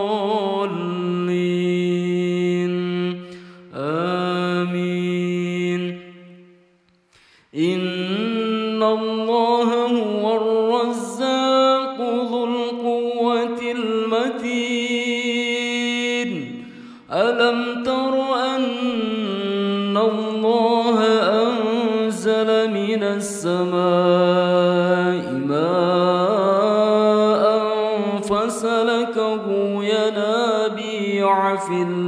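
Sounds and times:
solo voice chanting recitation: 0.0s - 6.7s, 7.5s - 32.0s.

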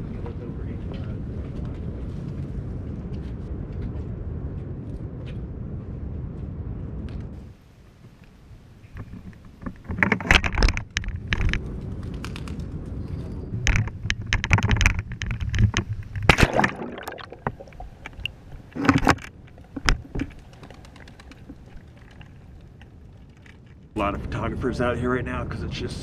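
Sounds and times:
low rumble: 0.0s - 7.4s
camera cage knocking and rattling: 13.7s - 16.4s.

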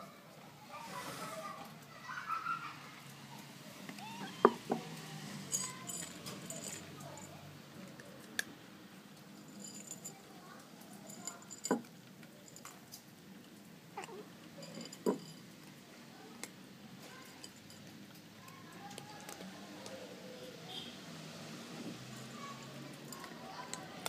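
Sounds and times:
dish clinking on wooden boards: 4.4s - 4.9s, 11.1s - 11.9s, 14.6s - 15.5s
dry cat food clattering: 14.0s - 20.0s, 22.0s - 24.0s
cat crunching kibble: 17.8s - 20.0s.

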